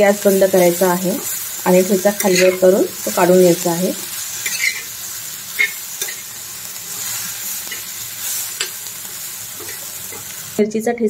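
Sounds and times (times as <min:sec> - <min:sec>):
chilli sizzling in oil: 0:00.0 - 0:10.8
metal spatula scraping a pan: 0:02.1 - 0:02.8, 0:04.1 - 0:10.3.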